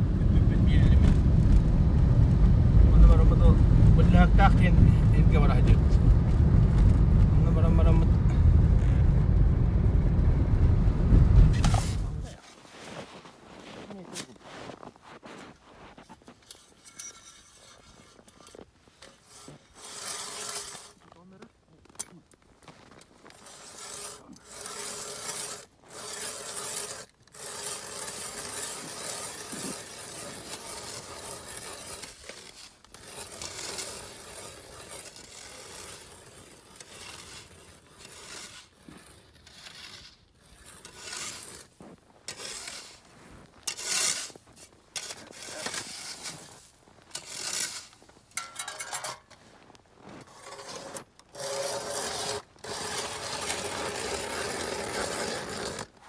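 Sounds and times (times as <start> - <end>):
ice auger blades rasping: 11.5 - 56.0.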